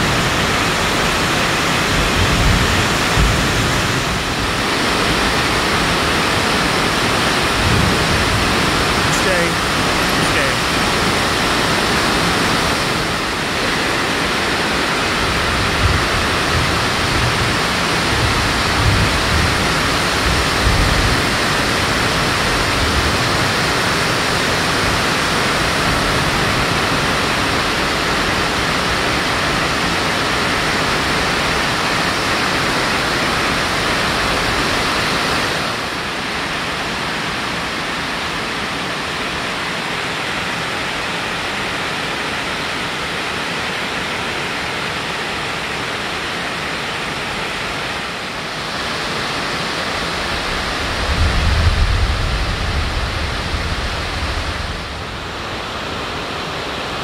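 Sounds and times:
rain pattering on a tarp: 0.0 - 34.5.

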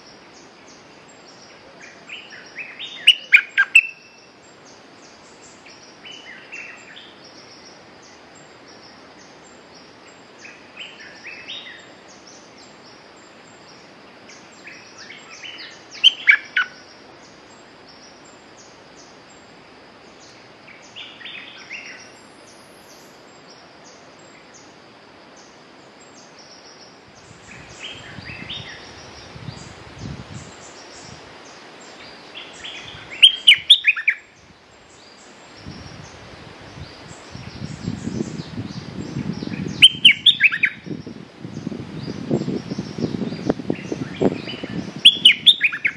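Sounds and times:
bird calling in bubbly phrases: 3.0 - 4.0, 39.8 - 40.8, 44.5 - 45.9.

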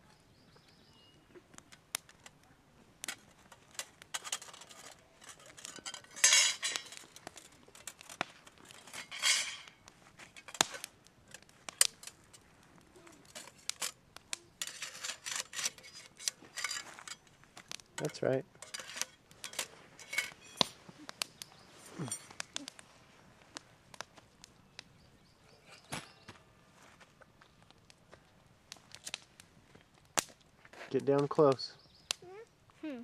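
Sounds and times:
metal scrapes: 3.5 - 8.0, 8.6 - 9.8, 14.6 - 17.2, 18.0 - 20.7.

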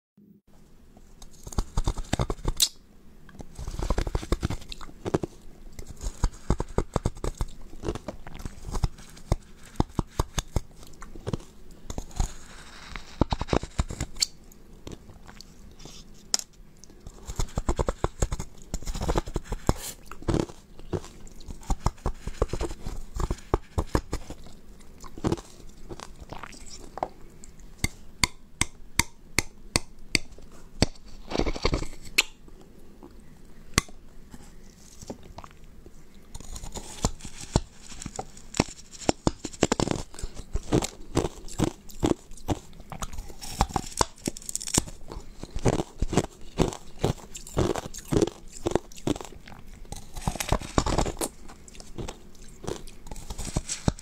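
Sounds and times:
teeth crunching ice: 36.4 - 54.0.

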